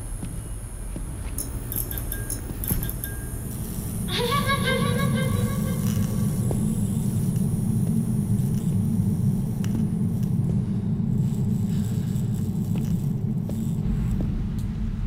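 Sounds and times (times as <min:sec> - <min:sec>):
low rumbling drone: 0:03.0 - 0:15.0
faint ticks: 0:09.6 - 0:10.4.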